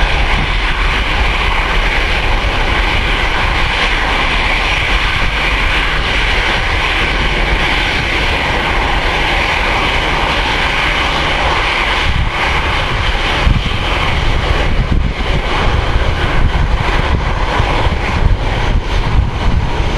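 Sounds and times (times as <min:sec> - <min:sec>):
jet engines roaring: 0:00.0 - 0:19.9.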